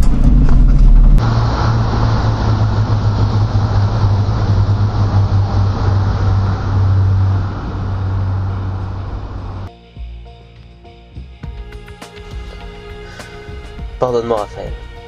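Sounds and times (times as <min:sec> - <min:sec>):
low hum: 0:00.0 - 0:09.7
train wheels rumbling on rails: 0:00.0 - 0:09.7.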